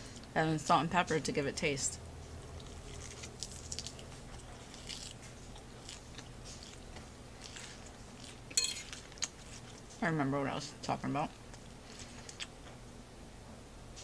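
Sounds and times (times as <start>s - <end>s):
chewing salad: 2.2s - 12.8s
fork clattering on plate: 8.5s - 9.0s.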